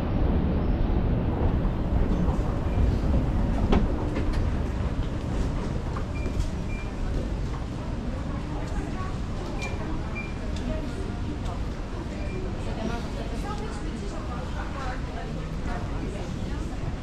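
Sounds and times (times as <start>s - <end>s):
escalator rumbling: 0.0s - 7.7s.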